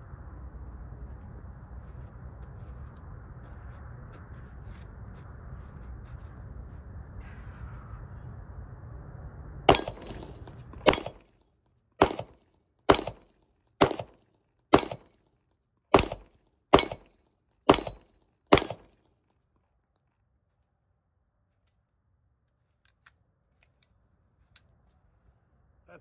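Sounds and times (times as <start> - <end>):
pistol shots: 9.7 - 11.2, 12.0 - 15.1, 15.9 - 17.1, 17.7 - 18.9.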